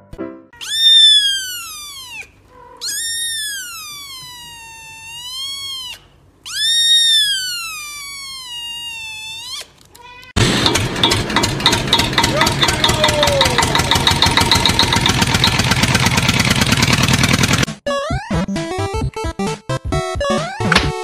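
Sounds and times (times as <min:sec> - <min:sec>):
kitten meowing: 0:00.6 - 0:10.4
harsh rhythmic noise: 0:10.4 - 0:16.8.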